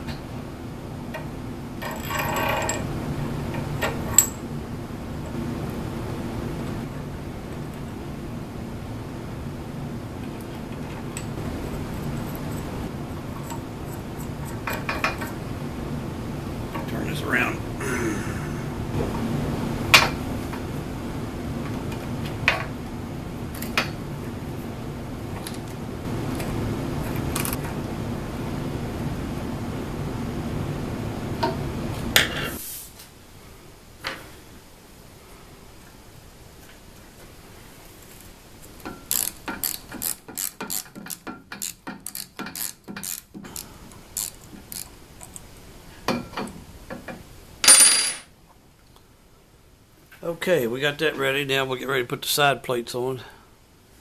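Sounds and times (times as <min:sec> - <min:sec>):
steady low hum: 0:00.0 - 0:40.3
loud metallic rattle with ring: 0:01.8 - 0:02.9.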